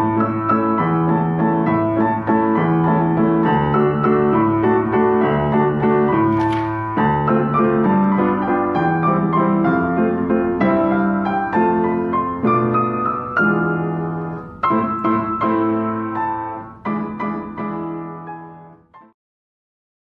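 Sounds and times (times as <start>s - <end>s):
piano music: 0.0s - 19.2s.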